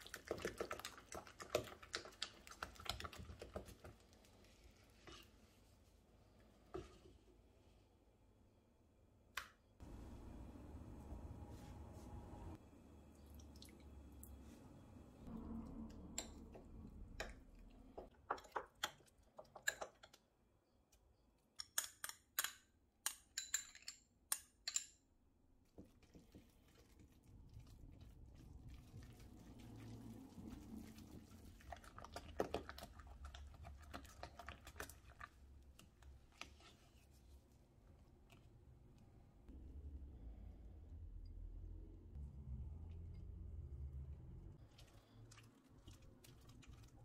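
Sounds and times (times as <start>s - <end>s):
kitchen work clicks and taps: 16.1s - 20.3s, 21.6s - 25.0s
low hum: 39.5s - 44.6s.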